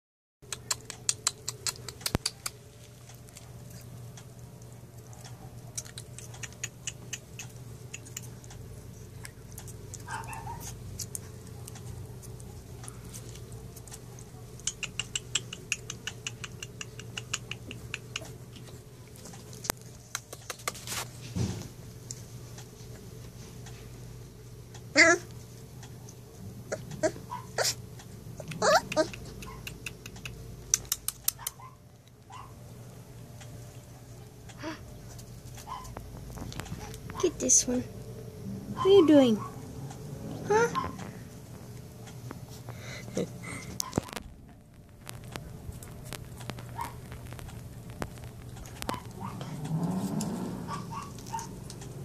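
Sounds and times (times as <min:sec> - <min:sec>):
steady low hum: 0:00.4 - 0:52.0
puppy whimpering: 0:24.9 - 0:25.3, 0:26.6 - 0:27.8, 0:28.4 - 0:30.2, 0:34.6 - 0:34.8, 0:40.3 - 0:41.2, 0:48.6 - 0:51.8
puppies scratching in a box: 0:43.8 - 0:51.8.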